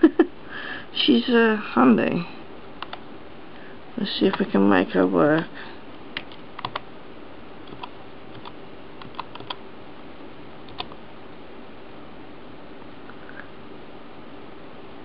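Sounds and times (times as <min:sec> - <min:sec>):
faint background hum: 0:00.0 - 0:15.0
keyboard keys clicking: 0:06.2 - 0:06.8, 0:07.7 - 0:09.6, 0:10.7 - 0:11.0.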